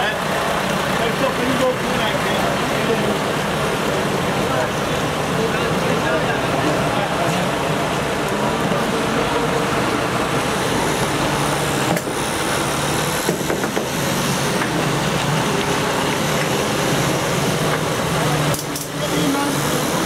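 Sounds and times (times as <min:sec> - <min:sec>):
truck diesel engine at low revs: 0:00.0 - 0:20.0.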